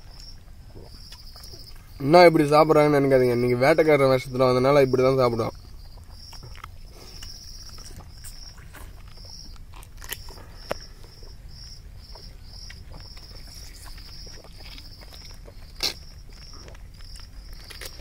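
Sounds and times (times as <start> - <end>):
insect chirping: 0.0 - 18.0
person chewing juicy fruit: 0.0 - 18.0
wet smacks: 12.2 - 18.0.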